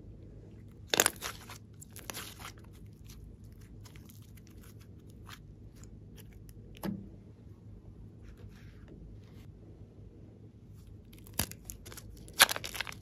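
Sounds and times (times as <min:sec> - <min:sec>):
hands squeezing clay: 0:00.5 - 0:06.8, 0:10.8 - 0:13.0.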